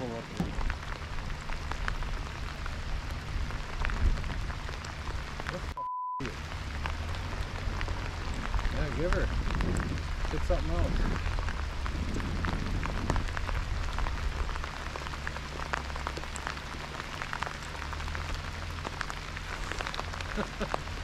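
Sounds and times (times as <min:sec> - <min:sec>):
rain falling on water: 0:00.0 - 0:21.0
raindrops ticking: 0:00.0 - 0:21.0.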